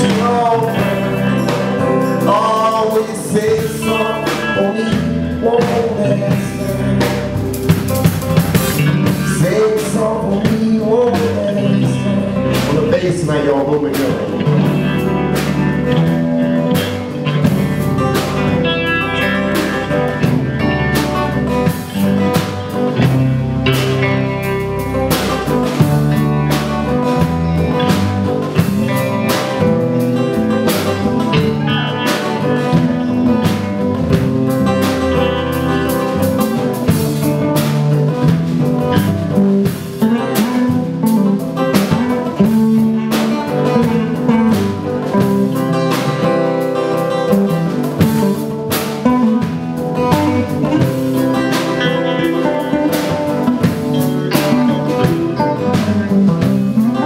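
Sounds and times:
bass guitar: 0.0 - 57.0
drum kit: 0.0 - 57.0
electric guitar: 0.0 - 57.0
strummed acoustic guitar: 0.0 - 57.0.

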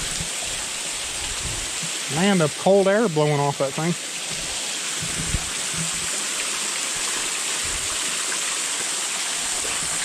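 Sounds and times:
small waterfall splashing on rocks: 0.0 - 10.0
soft low bumps: 4.3 - 6.1.

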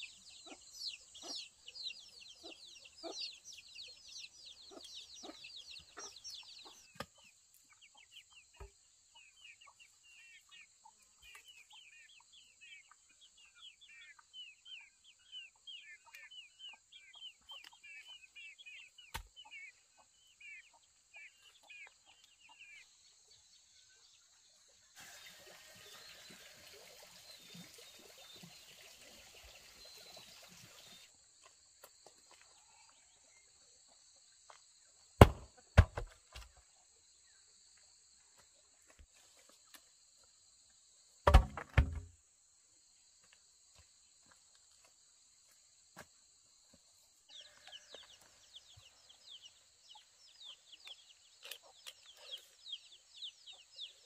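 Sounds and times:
loud knocks: 41.3 - 42.1.

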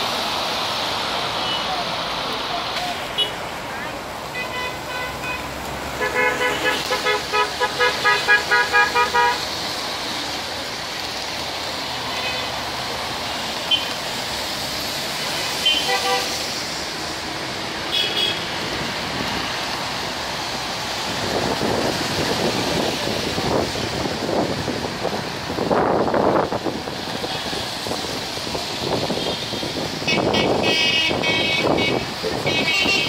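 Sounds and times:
road traffic rushing: 0.0 - 33.0
car horns tooting: 4.3 - 9.4, 15.6 - 16.4, 17.9 - 18.5, 30.0 - 33.0.

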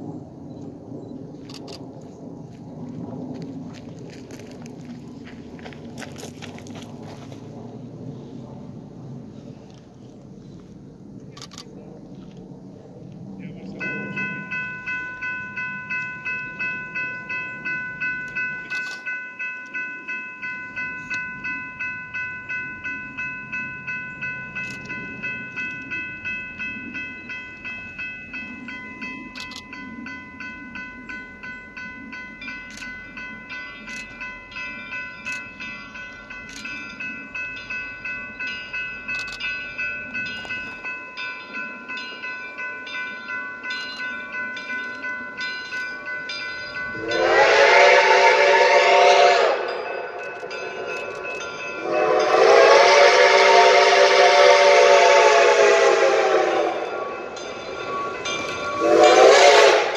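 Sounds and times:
distant steam locomotive rumble: 0.0 - 59.9
railroad crossing bell ringing: 13.4 - 59.9.

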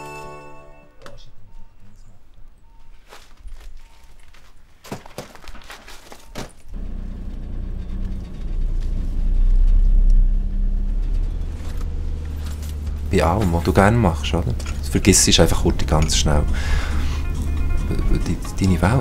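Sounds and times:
van engine starting and revving: 6.8 - 19.0.

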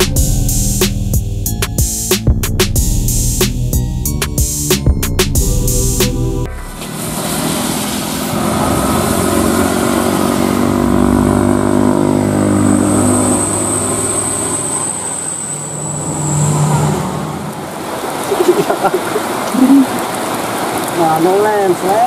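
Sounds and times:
truck engine passing: 0.0 - 21.0
tyres hissing on wet road: 6.8 - 10.7, 12.3 - 22.0.

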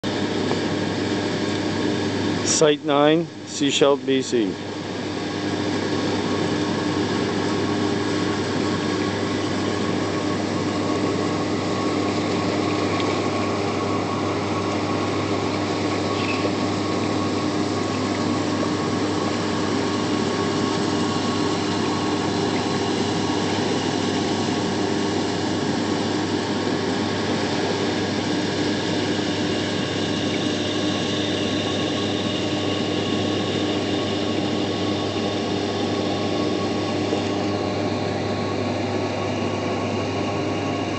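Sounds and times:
machine hum: 0.0 - 40.9
water churning: 6.7 - 25.6.

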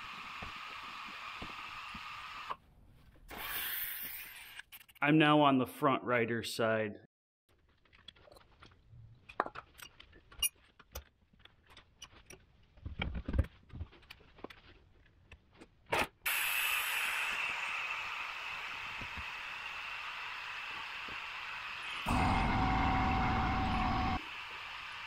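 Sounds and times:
fluid extractor hissing: 16.3 - 25.0.

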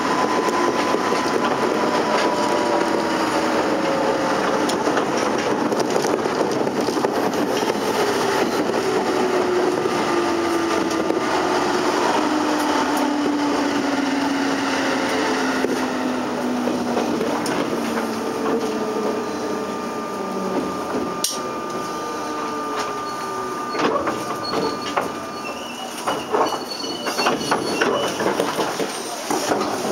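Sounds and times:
electric train motor slowing: 0.0 - 29.9
faint brake squeaks: 23.1 - 29.3.

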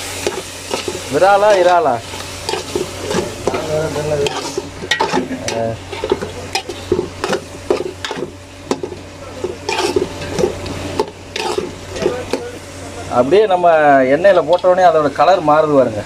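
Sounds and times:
food sizzling in oil: 0.0 - 16.0
ladle clinking and scraping pot: 0.2 - 12.5.

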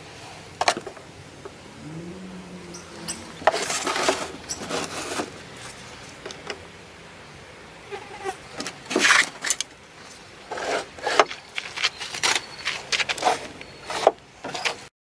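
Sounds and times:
handling knocks and scrapes: 3.0 - 6.6, 8.6 - 14.9.

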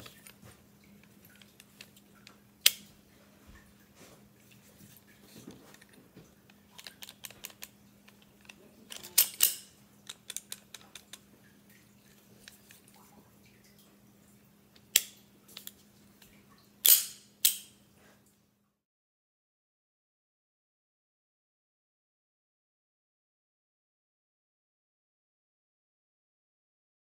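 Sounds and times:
metal clicks of gun action: 6.8 - 11.2, 16.8 - 17.7.

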